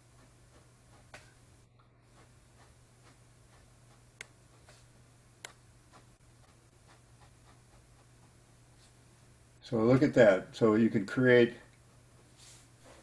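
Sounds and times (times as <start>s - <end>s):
low steady hum: 0.0s - 13.0s
pen scratching on paper: 2.0s - 4.9s, 5.8s - 9.0s.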